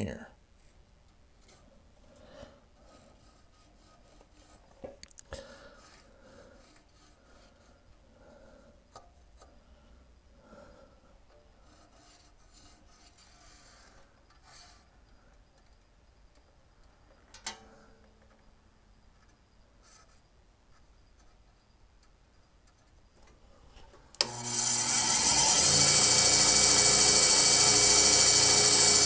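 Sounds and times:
hands rubbing and scraping metal: 2.8s - 5.0s, 11.4s - 14.9s.

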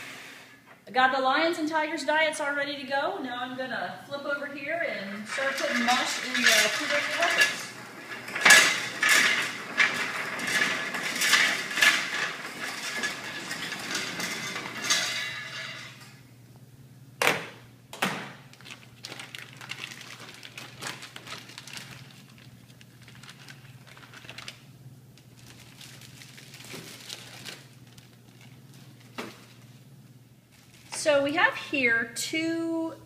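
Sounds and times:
plastic bag rustling: 4.7s - 15.9s, 18.4s - 31.6s
clatter: 5.3s - 15.6s.

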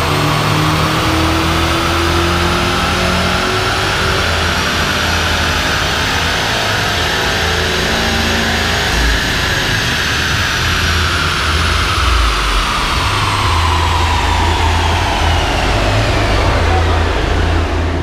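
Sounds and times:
rushing noise: 0.0s - 18.0s
low rumble: 8.7s - 18.0s.

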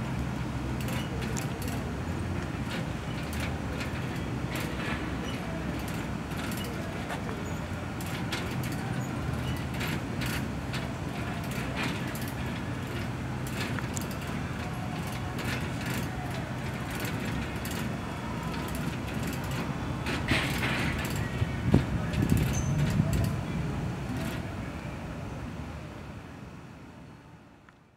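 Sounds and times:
rollsign mechanism clicks and rattles: 0.4s - 23.4s, 24.1s - 24.5s.

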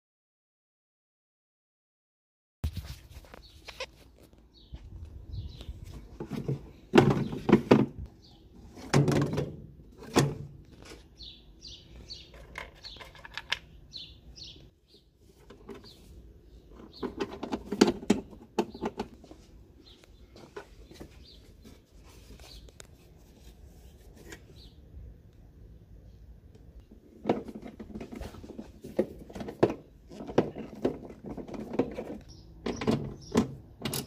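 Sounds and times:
small birds chirping: 3.2s - 8.9s, 10.6s - 27.0s, 29.3s - 34.0s
knocks and clunks: 6.2s - 8.1s, 8.7s - 10.6s, 27.1s - 34.0s.

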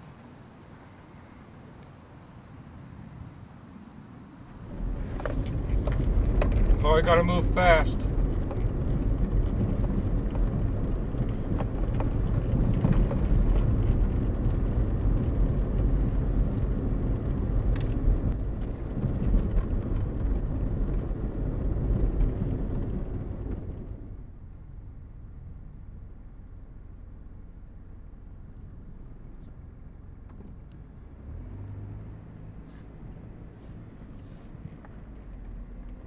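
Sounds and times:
quiet hiss: 0.0s - 36.0s
vehicle engine and tyres rumbling: 0.0s - 36.0s
knocks and rattles: 4.7s - 24.0s.

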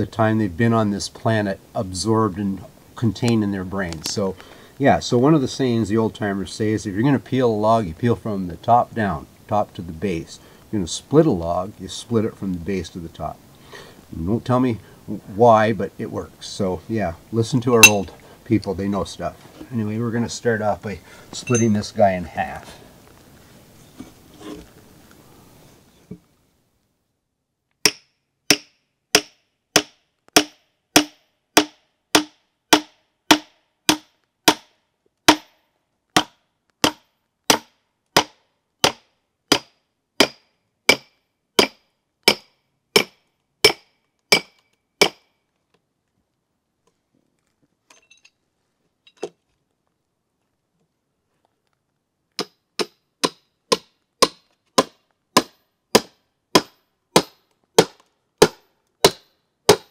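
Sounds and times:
hammer striking steel wedges: 17.8s - 18.1s, 21.4s - 21.9s, 27.9s - 34.6s, 36.2s - 45.2s, 52.4s - 59.9s.

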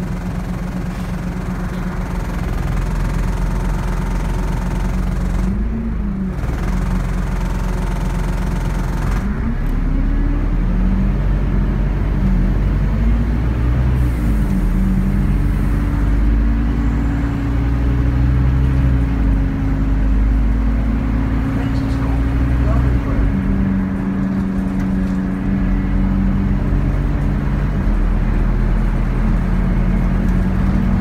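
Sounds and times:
bus diesel engine: 0.0s - 31.0s.

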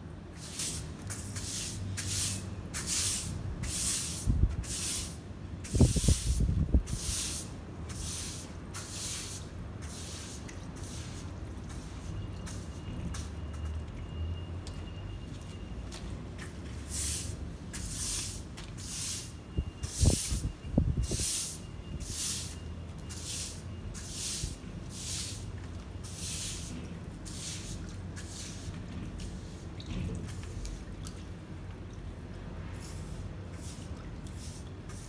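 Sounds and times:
broom sweeping wet grit on cement: 0.4s - 13.4s, 16.8s - 29.8s, 32.8s - 35.0s.

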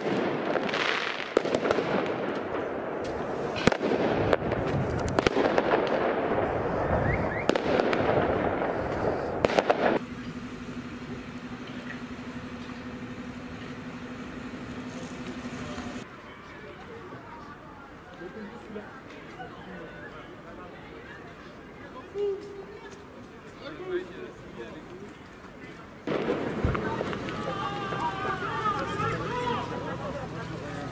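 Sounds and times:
firework bangs: 0.0s - 16.0s, 26.0s - 30.9s
continuous rushing noise: 0.0s - 30.9s
steady low hum: 6.1s - 16.1s.

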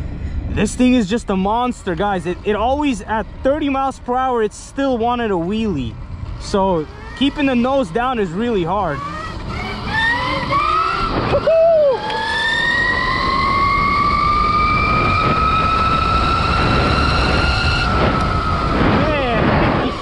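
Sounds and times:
electric motor whining: 6.8s - 20.0s
wind rush on microphone: 11.0s - 12.2s, 12.8s - 20.0s.

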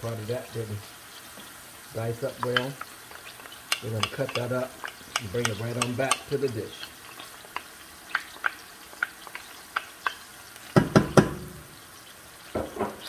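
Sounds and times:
onions sizzling in oil: 0.0s - 13.0s
wooden spoon tapping and scraping: 2.3s - 11.4s
wooden spoon knocks: 10.8s - 11.4s.

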